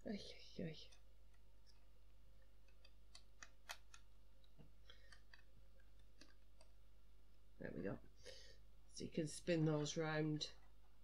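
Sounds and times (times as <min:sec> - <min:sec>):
plastic bricks clicking into place: 0:02.6 - 0:04.1.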